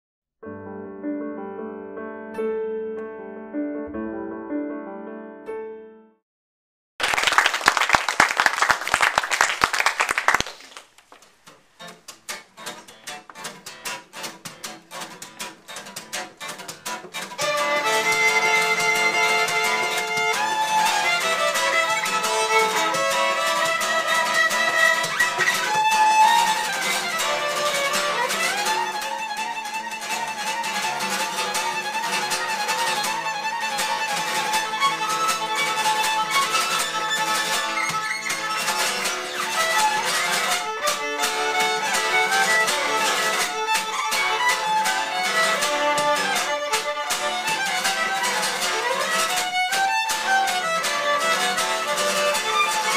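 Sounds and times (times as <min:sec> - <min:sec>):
applause: 0:07.0 - 0:11.3
acoustic guitar playing: 0:11.4 - 0:52.9
bowed violin: 0:17.4 - 0:52.9.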